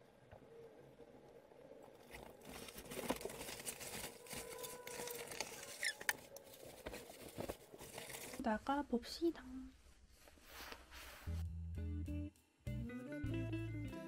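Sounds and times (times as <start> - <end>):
jacket fabric rustling: 2.0 - 8.4, 10.0 - 11.4.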